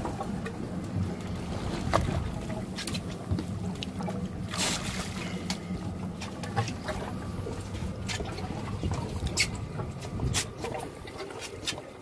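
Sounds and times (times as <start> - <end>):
low steady hum: 0.0 - 12.0
water splashing against hull: 0.0 - 12.0.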